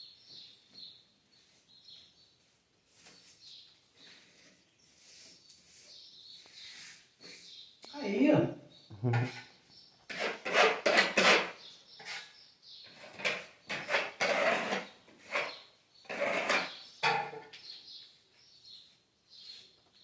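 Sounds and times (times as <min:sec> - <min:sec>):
hand tool scraping plaster: 0:10.1 - 0:16.9.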